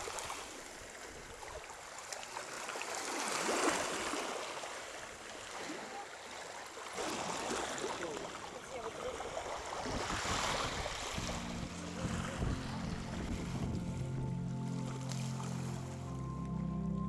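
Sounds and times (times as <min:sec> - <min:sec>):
sea water splashing at shore: 0:00.0 - 0:13.8, 0:14.8 - 0:16.1
music with held low notes: 0:10.8 - 0:17.0.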